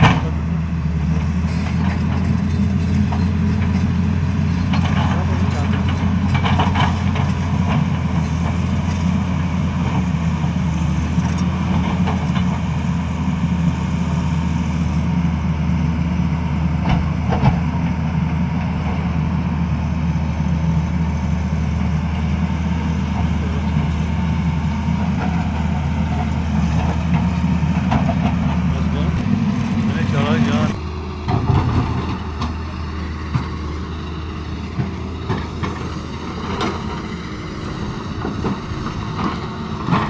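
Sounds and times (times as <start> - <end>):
excavator diesel engine running: 0.0 - 40.0.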